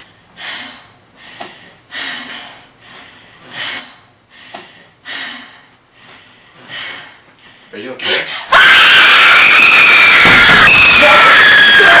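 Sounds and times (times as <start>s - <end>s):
person breathing heavily: 0.0s - 8.5s.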